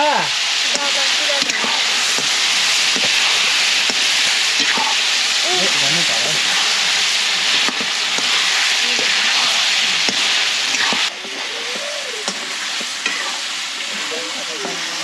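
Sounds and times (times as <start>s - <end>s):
meat sizzling in oil: 0.0s - 15.0s
wooden spatula scraping wok: 6.4s - 11.5s, 12.2s - 14.1s.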